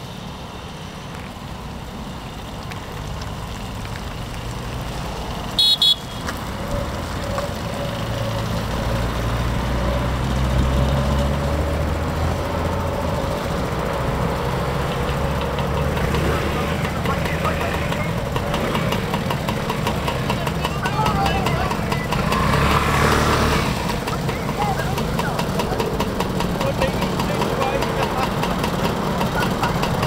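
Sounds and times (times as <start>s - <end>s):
scooter engines at low speed: 0.0s - 30.0s
horn beeps: 5.6s - 6.4s.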